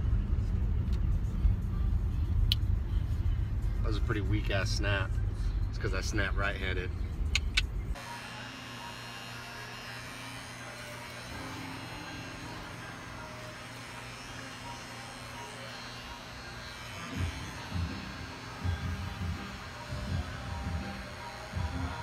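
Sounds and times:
tattoo machine humming: 7.4s - 22.0s.

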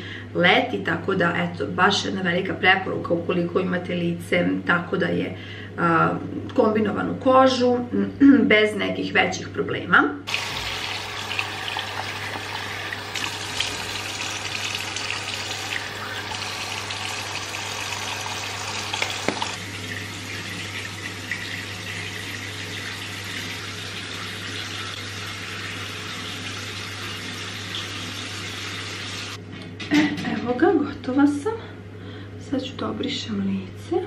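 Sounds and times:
tap water pouring into basin: 10.3s - 29.3s.

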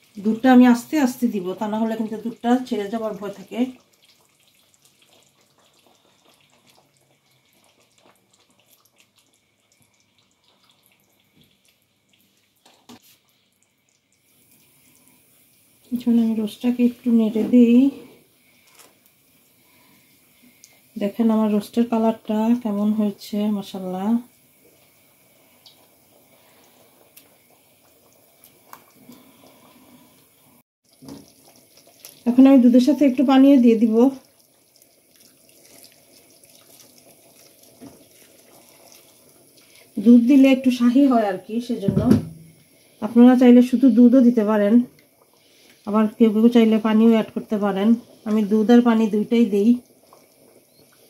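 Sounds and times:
milk trickling into pot: 0.0s - 41.8s, 42.5s - 51.0s
stirring food in liquid sauce: 3.7s - 12.9s, 34.3s - 39.8s
knock: 41.8s - 42.5s.

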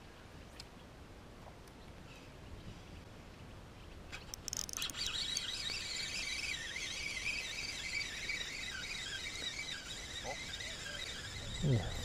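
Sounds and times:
fishing reel gears whirring: 4.2s - 12.0s.

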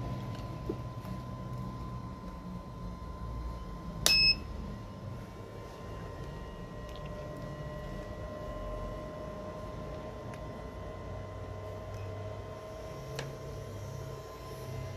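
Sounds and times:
faint electrical hum with whine: 0.0s - 14.9s
loud electronic beep: 4.1s - 4.5s.

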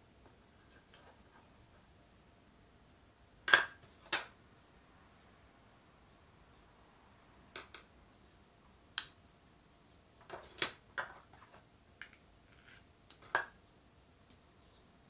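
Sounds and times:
plastic plates clicking on table: 3.5s - 4.3s, 7.6s - 7.9s.

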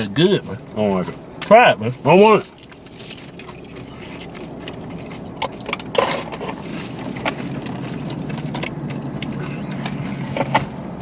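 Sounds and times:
car cabin hum: 0.0s - 11.0s
tortilla chips crunching: 2.3s - 10.2s.

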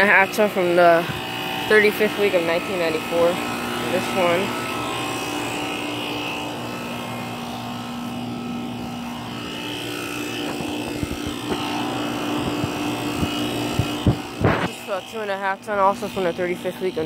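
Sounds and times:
air conditioner units humming: 0.0s - 17.0s
low irregular thumps: 10.2s - 14.7s.

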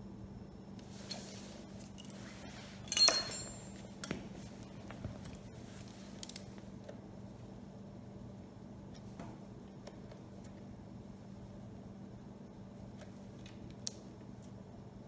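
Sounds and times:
metal hand tools clinking: 2.9s - 3.9s.

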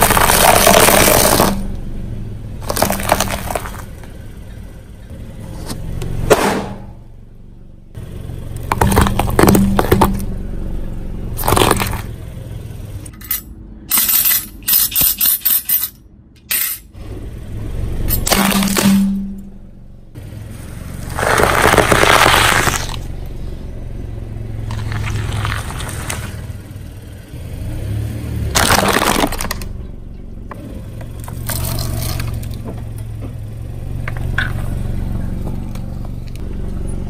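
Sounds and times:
tyre crushing food: 0.0s - 1.6s, 2.6s - 3.9s, 8.6s - 10.3s, 11.4s - 12.1s, 21.0s - 23.0s, 28.6s - 29.6s.

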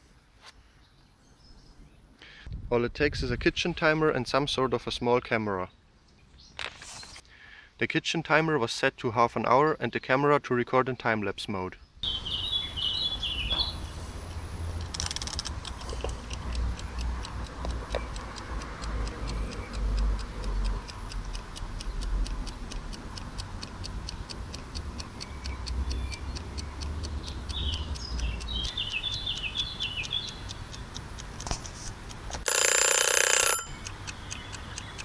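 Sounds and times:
wind rumble on microphone: 2.5s - 3.6s
bird chirping: 11.8s - 14.0s, 25.2s - 30.8s, 33.7s - 35.0s
kitchen timer ticking: 16.1s - 31.4s, 32.1s - 35.0s.

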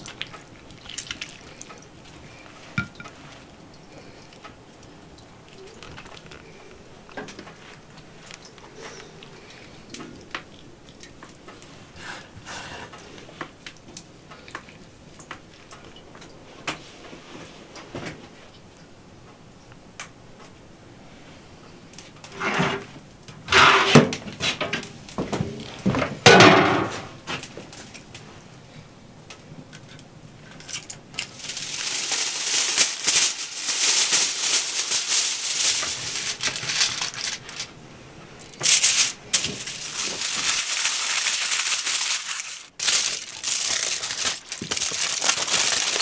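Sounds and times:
metal baking trays scraping: 22.2s - 22.9s, 23.5s - 24.6s
hands handling fish: 29.8s - 37.8s, 38.4s - 46.0s.

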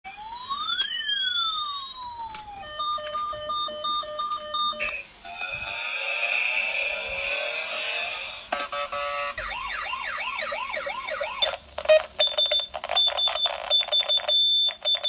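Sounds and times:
electronic siren wailing: 0.1s - 11.6s.

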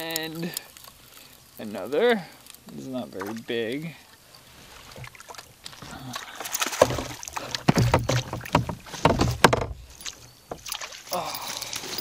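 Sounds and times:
knocks against boat hull: 6.8s - 9.8s.

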